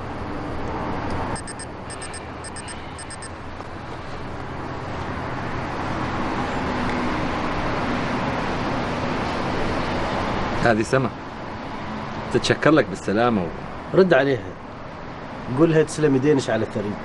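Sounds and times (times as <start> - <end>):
traffic rumble and hiss: 0.0 - 17.0
high beeps: 1.4 - 3.3.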